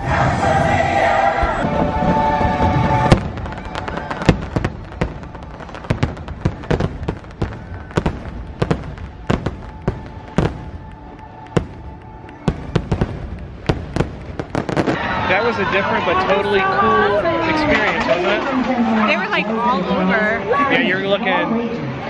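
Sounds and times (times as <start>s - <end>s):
fireworks bangs and crackles: 1.4s - 19.5s.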